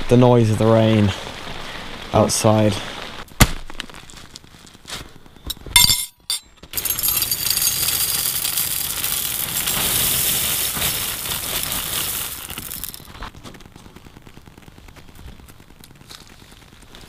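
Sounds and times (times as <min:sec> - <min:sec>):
cereal pouring into bowl: 0:06.8 - 0:13.3.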